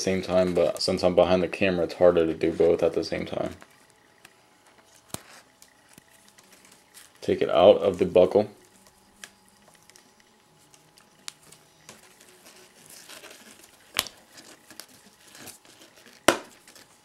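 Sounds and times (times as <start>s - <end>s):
paracord rustling and rasping: 8.6s - 17.0s.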